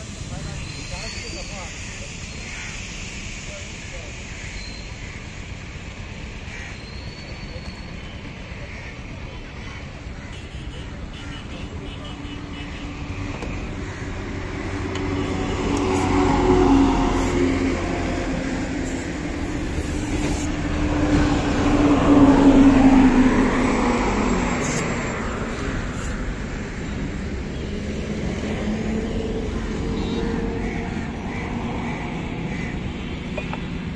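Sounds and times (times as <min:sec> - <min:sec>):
road traffic: 0:00.0 - 0:33.9
vehicle passing close: 0:12.8 - 0:33.9.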